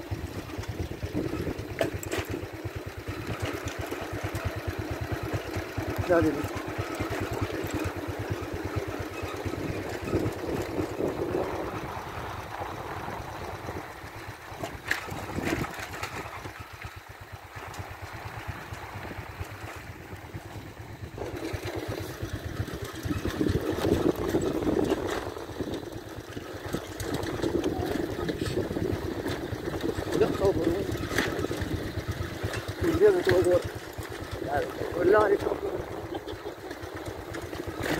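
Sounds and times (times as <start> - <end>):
vehicle engine rumbling: 0.0 - 37.9.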